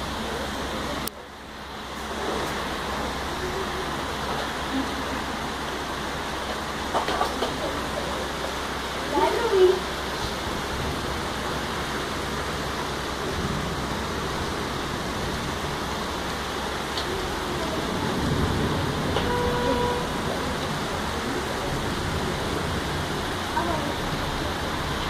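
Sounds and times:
heavy rain: 0.0s - 25.0s
short steady tone: 19.2s - 20.1s.

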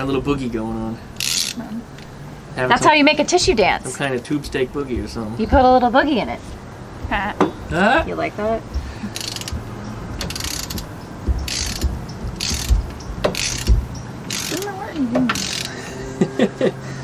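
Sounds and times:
ratchet wrench clicking: 1.2s - 1.6s, 9.1s - 15.8s.

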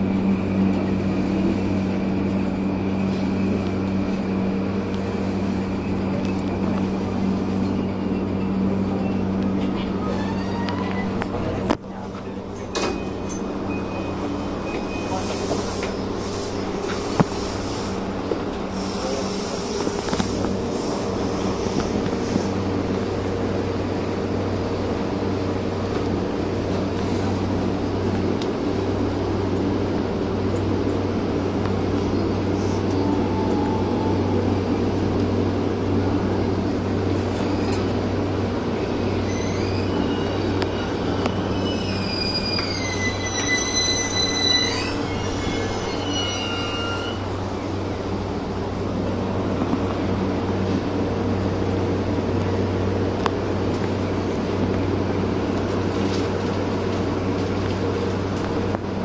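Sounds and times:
high squealing whine: 0.0s - 11.7s, 37.2s - 49.0s
electric train humming: 0.0s - 59.0s.

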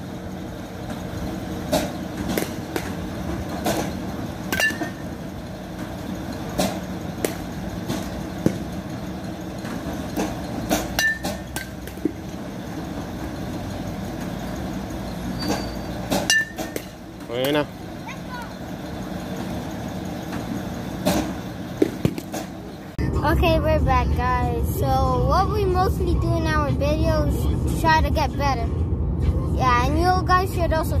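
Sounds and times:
steady background hum: 0.0s - 31.0s
balls striking cage: 0.3s - 18.0s, 18.6s - 22.9s
bat hitting baseballs: 0.9s - 13.3s, 15.2s - 18.0s, 19.4s - 22.7s
metallic ping: 4.5s - 5.0s, 11.0s - 11.8s, 15.4s - 17.0s.

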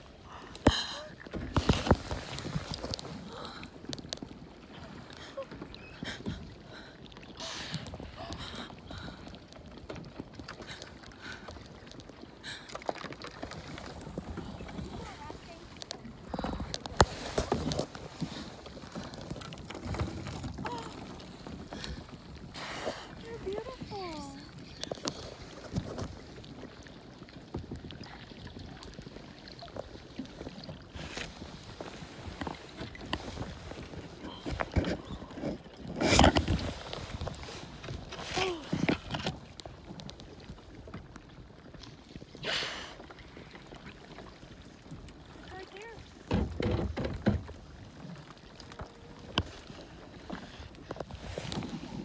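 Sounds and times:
paddle strokes splashing water: 0.0s - 52.0s
small water drips: 0.3s - 22.2s.

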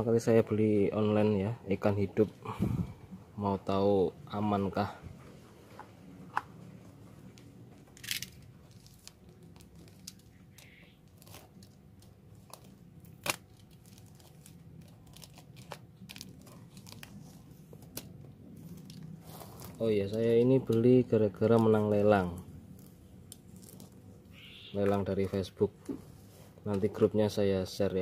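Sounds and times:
plastic crinkling: 8.0s - 24.2s
knife slicing plastic and tape: 12.4s - 20.8s.

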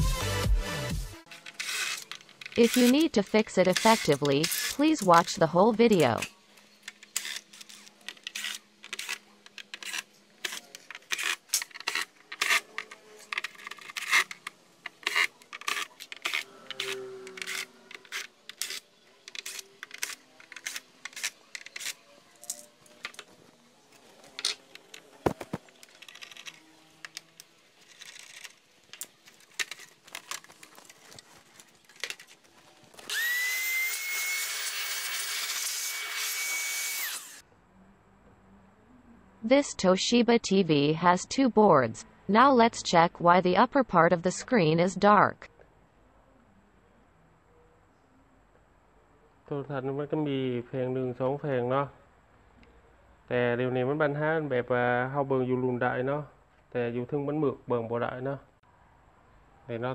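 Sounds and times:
screws and plastic cover clattering: 1.3s - 23.3s, 24.2s - 33.2s
cordless drill whirring: 32.9s - 37.4s.

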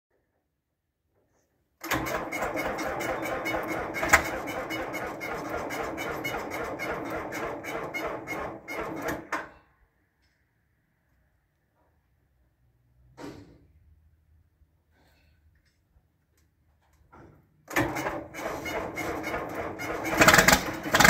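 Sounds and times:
diesel tractor engine chugging: 2.1s - 8.6s, 18.4s - 21.0s.

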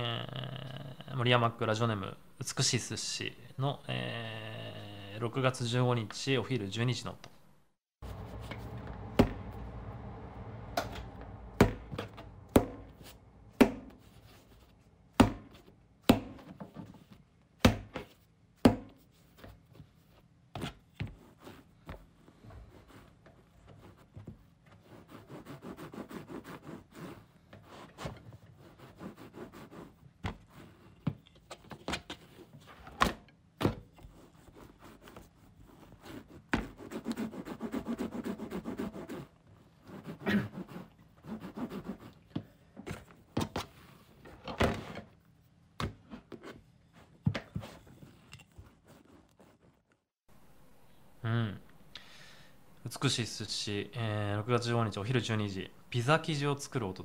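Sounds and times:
rolling pin rubbing dough: 21.0s - 31.0s, 34.0s - 42.3s.

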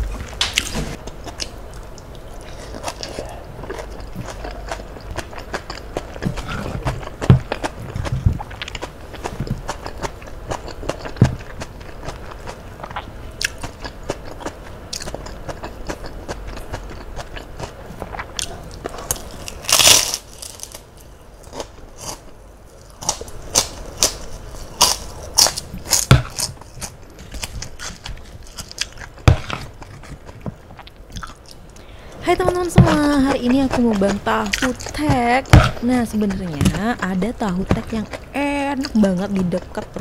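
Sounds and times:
cracker crunching: 0.0s - 40.0s
person chewing: 0.0s - 40.0s.

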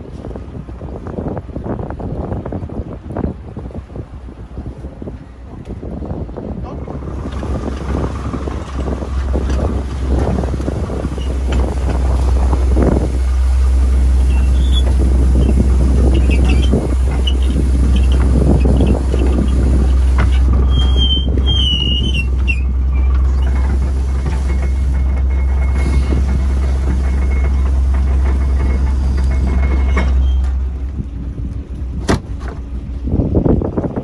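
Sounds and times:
boat engine droning: 0.0s - 34.0s
high wavering squeal: 10.9s - 27.8s.

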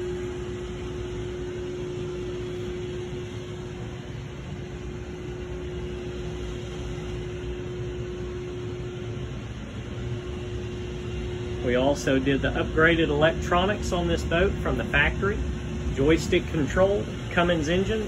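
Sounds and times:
machinery hum with steady tone: 0.0s - 18.0s.

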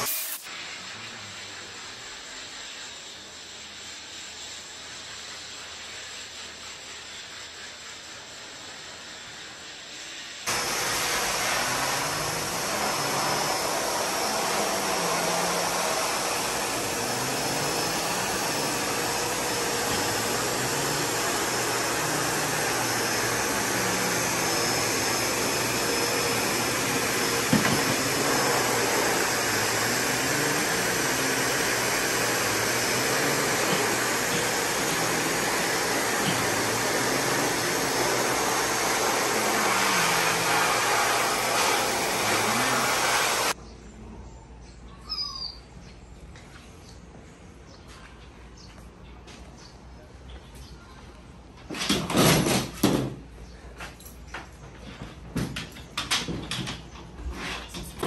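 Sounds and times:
blow dryer air rushing: 0.0s - 0.5s, 10.5s - 43.6s.

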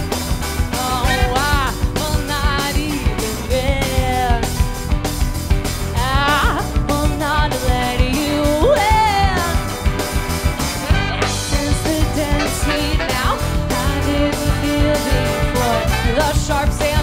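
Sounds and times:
sliding bending guitar lead: 0.0s - 7.0s, 8.9s - 16.3s
live rock band playing: 0.0s - 17.0s.

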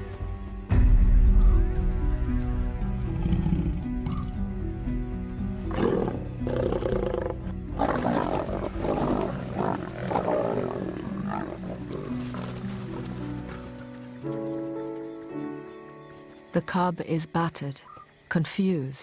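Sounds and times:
background music: 0.0s - 18.8s
lions snarling and growling: 3.2s - 4.3s, 5.7s - 13.7s.

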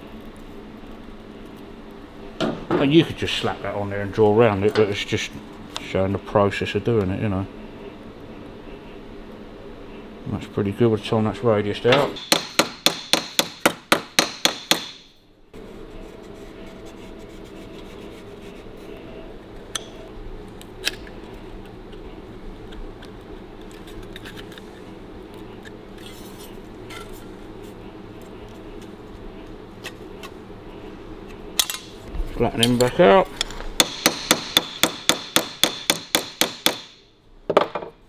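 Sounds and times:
steady low hum: 0.0s - 38.0s
hammer striking sheet steel: 12.2s - 15.1s, 33.8s - 37.0s.

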